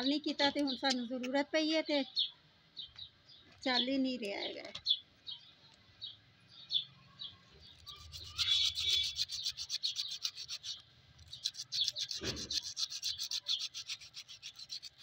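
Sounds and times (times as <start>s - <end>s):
sandpaper scrubbing metal: 7.8s - 15.0s.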